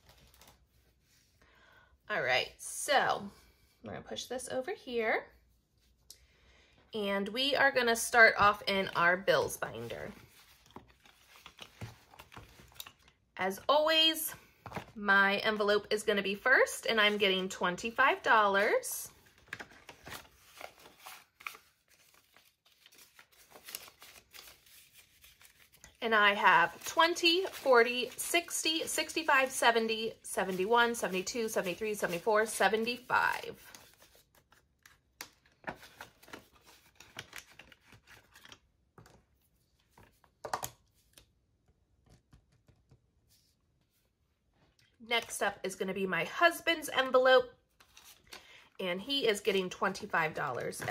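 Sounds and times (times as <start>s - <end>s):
banknotes rustling: 8.4s - 13.1s, 16.9s - 41.2s.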